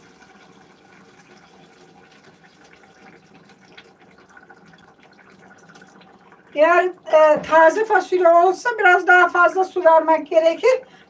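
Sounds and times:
water trickling into a pot: 0.0s - 11.0s.

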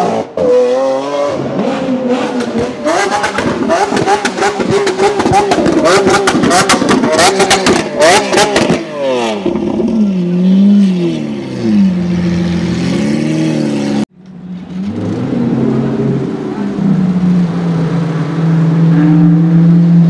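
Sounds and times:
car engine revving: 0.0s - 20.0s
exhaust pops and bangs: 2.2s - 9.8s.

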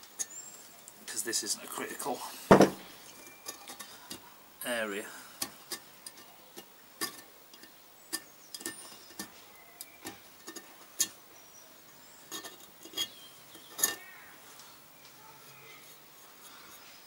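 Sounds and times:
tool scraping metal: 12.3s - 14.1s.

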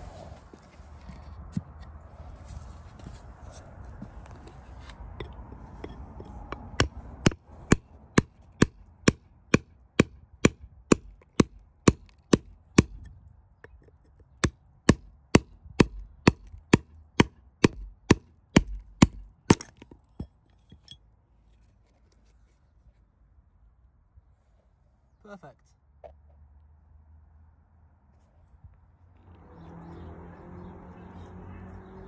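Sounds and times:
handling rustle: 0.2s - 6.4s
hammer tapping steel chisel: 4.2s - 15.1s.

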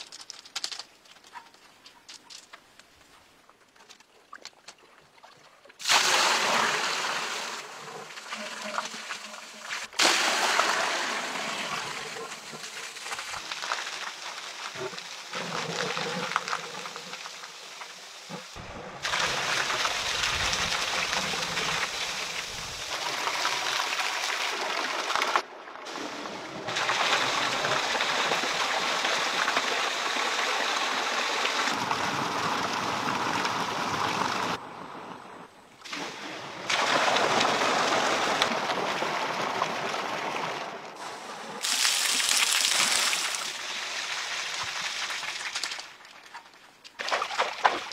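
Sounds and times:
water pouring into a pool: 5.8s - 17.8s, 18.4s - 34.6s, 35.9s - 40.7s, 41.6s - 46.0s.

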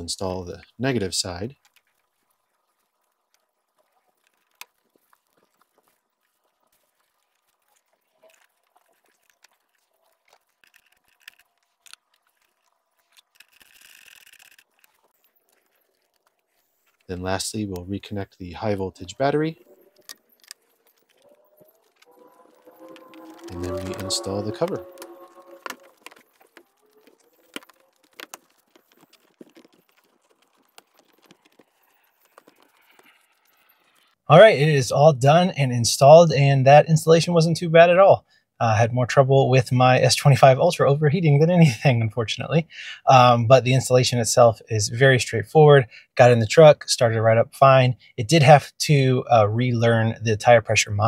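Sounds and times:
wrench scraping and ticking: 8.2s - 17.1s, 19.6s - 23.7s.

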